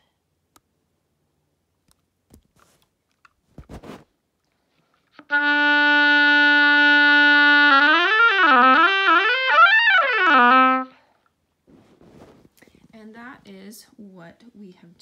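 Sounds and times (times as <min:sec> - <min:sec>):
oboe playing notes: 0:05.2 - 0:11.0.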